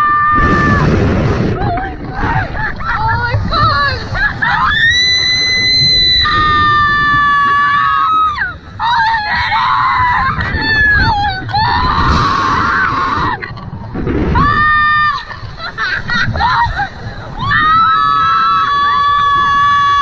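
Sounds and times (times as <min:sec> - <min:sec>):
women screaming: 0:00.0 - 0:00.9, 0:01.6 - 0:13.4, 0:14.4 - 0:20.0
wind rumble on microphone: 0:00.0 - 0:20.0.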